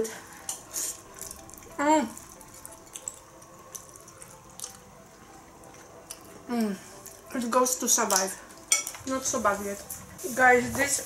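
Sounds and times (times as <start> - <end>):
chewing with wet mouth clicks: 0.5 - 6.4.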